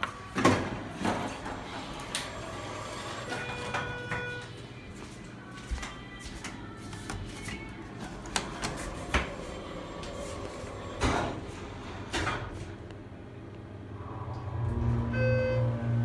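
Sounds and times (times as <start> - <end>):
short beep: 15.0 - 16.0.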